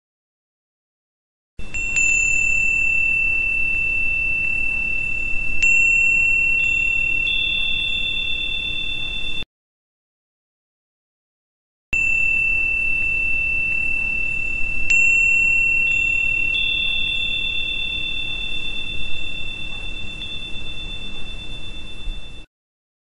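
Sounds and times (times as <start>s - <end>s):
high ringing chime tone: 1.6s - 9.5s, 12.0s - 22.5s.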